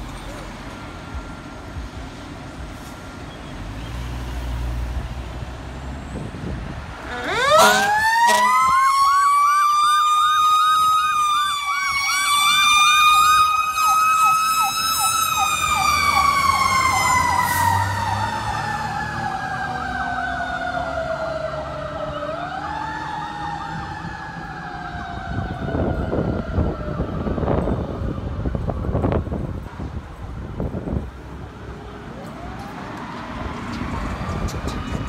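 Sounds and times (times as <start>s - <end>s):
wailing siren: 7.0s - 29.6s, 32.1s - 35.0s
fast electronic siren yelp: 7.1s - 17.4s.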